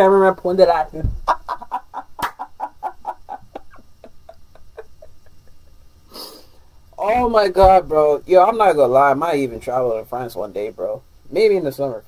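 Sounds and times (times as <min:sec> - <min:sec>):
person laughing: 0:01.2 - 0:05.9.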